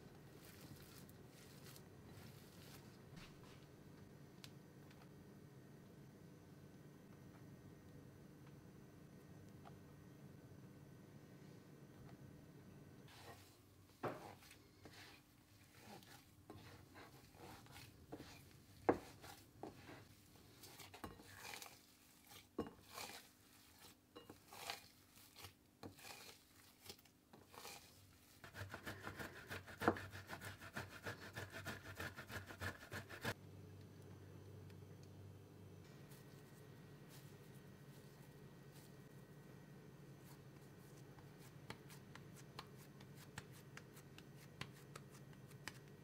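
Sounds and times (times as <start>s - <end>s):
hands kneading dough: 0.0s - 3.6s, 13.1s - 33.4s, 40.0s - 46.0s
cheese grated on metal grater: 14.2s - 33.4s.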